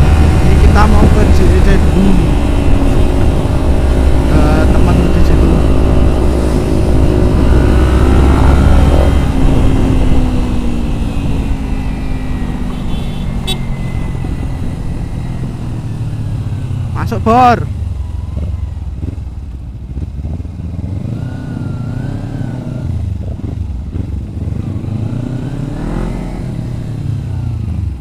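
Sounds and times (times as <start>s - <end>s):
wind rush on microphone: 0.0s - 12.6s
motorcycle engine running: 0.0s - 26.8s.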